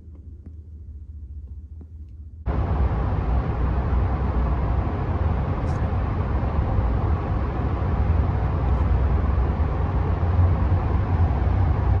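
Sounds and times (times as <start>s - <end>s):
road and drivetrain rumble: 2.5s - 12.0s.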